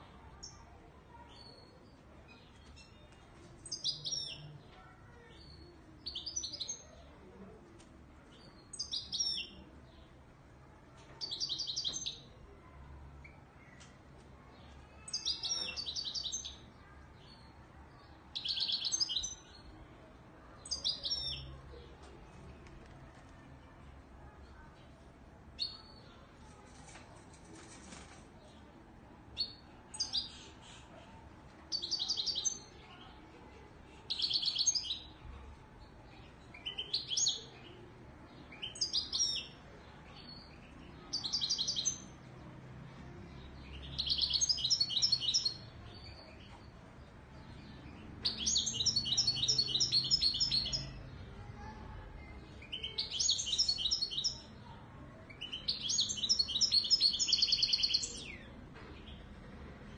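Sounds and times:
goldfinch singing: 48.2 - 51.0.

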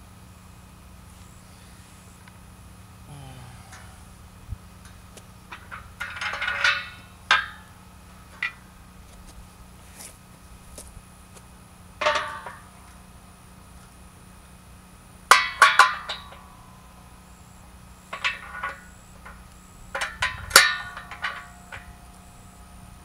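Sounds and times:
metal frame parts clanking: 4.8 - 9.0, 12.0 - 13.0, 15.3 - 16.8, 18.1 - 23.0.

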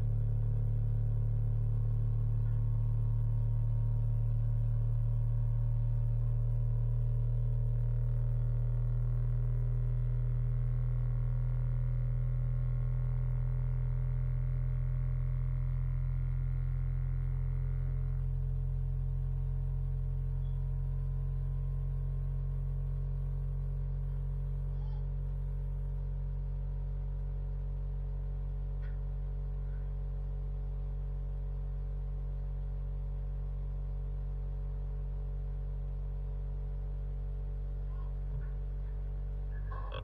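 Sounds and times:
cotton candy machine motor humming: 39.6 - 40.0.

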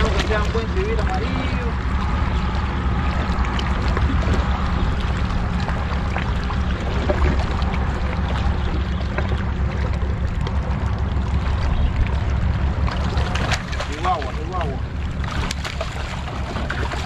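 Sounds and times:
sea water rushing: 0.0 - 17.0
wind rumble on microphone: 0.0 - 17.0.

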